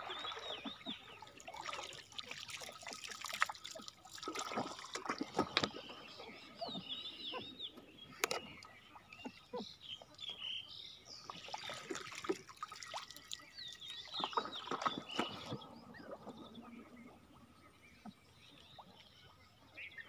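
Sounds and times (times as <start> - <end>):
birds chirping: 0.0 - 1.4, 4.6 - 20.0
water splashing: 0.0 - 9.6, 11.1 - 17.2.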